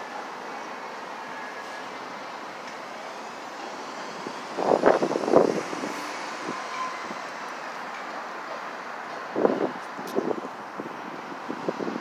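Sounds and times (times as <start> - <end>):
freight train rumbling: 2.6 - 12.0
faint high wheel squealing: 6.4 - 7.3.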